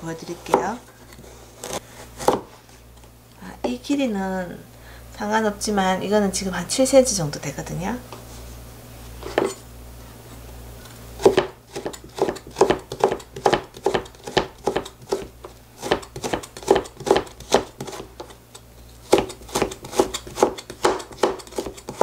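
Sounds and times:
knife cutting on plastic board: 0:11.2 - 0:18.4, 0:19.0 - 0:22.0.

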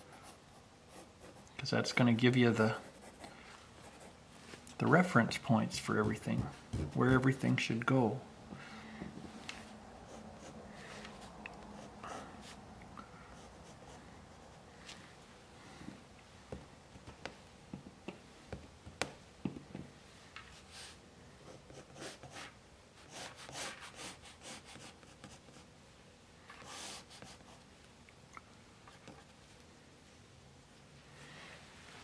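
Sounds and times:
pencil sketching on paper: 0:00.0 - 0:01.5, 0:05.7 - 0:07.4, 0:10.0 - 0:10.9, 0:11.6 - 0:12.6, 0:13.3 - 0:14.7, 0:21.4 - 0:25.7.

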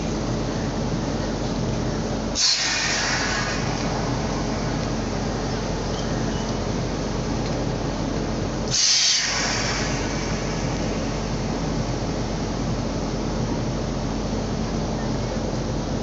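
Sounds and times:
locomotive idling rumble: 0:00.0 - 0:16.0
compressed air hissing: 0:02.3 - 0:06.7, 0:08.6 - 0:12.2.

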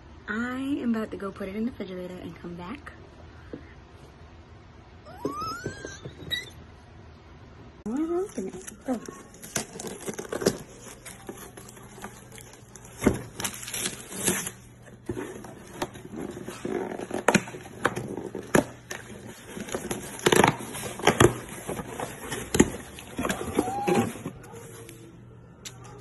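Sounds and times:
cardboard box being opened: 0:08.3 - 0:24.7.

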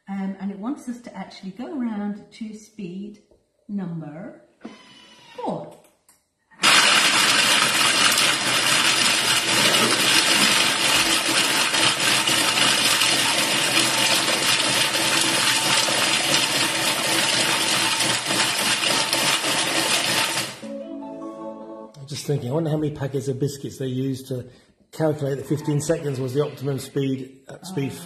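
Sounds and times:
food processor blades running: 0:06.6 - 0:20.6.

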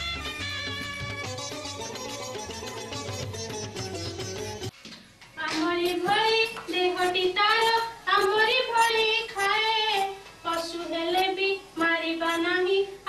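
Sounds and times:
child singing unaccompanied: 0:05.4 - 0:13.0.

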